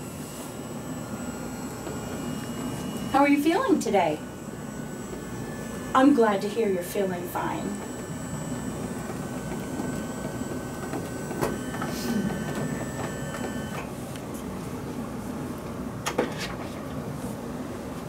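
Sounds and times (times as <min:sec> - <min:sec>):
electric bed motor running: 0:00.0 - 0:14.0.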